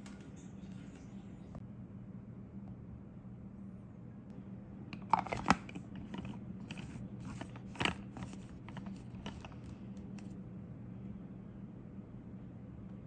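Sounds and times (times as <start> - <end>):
plastic clicks and scrapes: 5.0 - 9.7.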